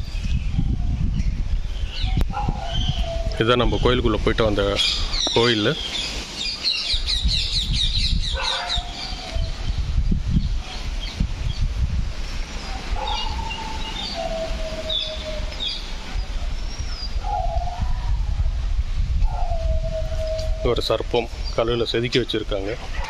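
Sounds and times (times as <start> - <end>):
wind rumble on microphone: 0.0 - 23.0
lower sliding bird calls: 12.5 - 18.3
high bird chirps: 13.0 - 17.8.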